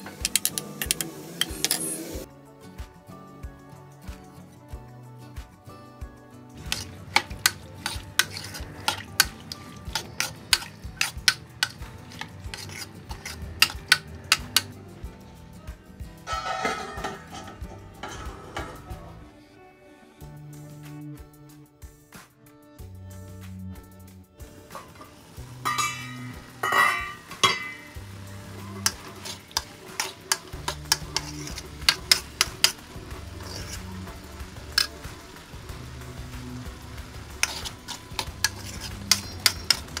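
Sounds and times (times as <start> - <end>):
spoon clinking and scraping pan: 0.0 - 2.0, 6.6 - 15.0, 16.3 - 19.1, 24.7 - 35.1, 37.2 - 40.0
background music low notes: 0.0 - 40.0
light frying sizzle: 6.4 - 18.4, 24.4 - 40.0.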